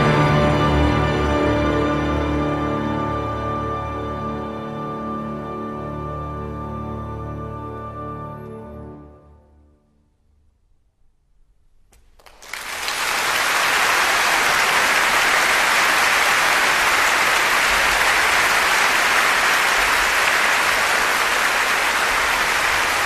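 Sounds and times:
audience applause: 12.2 - 23.0.

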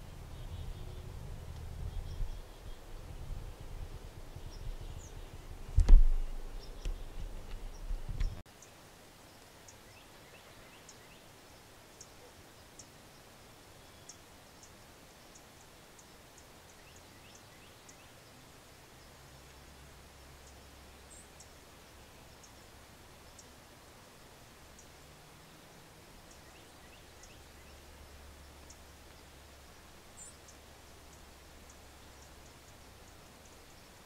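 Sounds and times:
camera handling rumble and knocks: 5.7 - 8.4.

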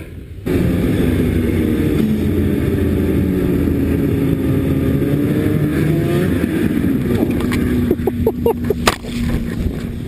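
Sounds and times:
snowmobile engine running: 0.4 - 10.0.

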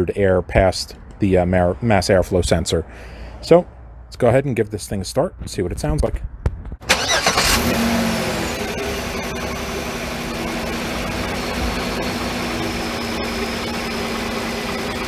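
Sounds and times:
car engine starting and idling: 6.8 - 15.0
faint high whine: 8.2 - 15.0.

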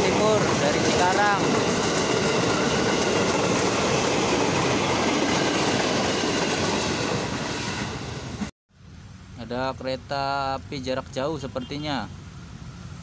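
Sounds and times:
train wheels rumbling on rails: 0.0 - 8.5.

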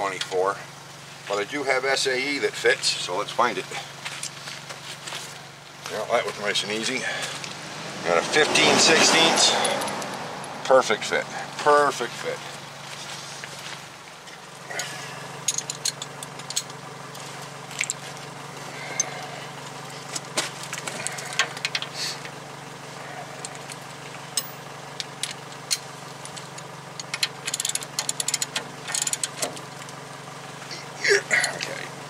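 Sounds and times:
steady low hum: 0.0 - 32.0
hand ratchet clicks: 24.4 - 29.5.

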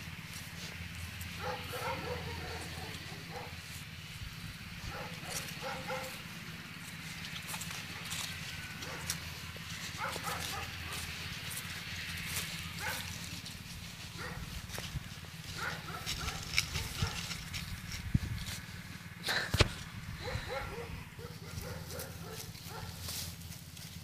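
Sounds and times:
steady low rumble: 0.0 - 11.3, 12.3 - 22.8
dry leaves rustling and crunching: 0.0 - 24.0
dog sniffing: 1.4 - 3.5, 4.9 - 6.1, 15.6 - 17.4, 19.3 - 23.1.

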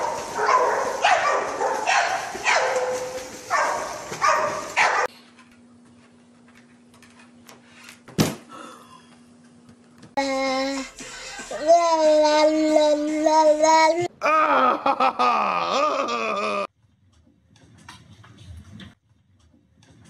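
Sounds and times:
dog barking: 0.0 - 5.1
pool water splashing: 0.0 - 5.1.

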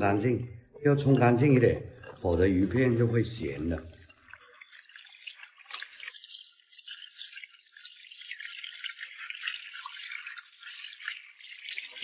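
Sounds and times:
tap water running and splashing: 0.0 - 12.0.

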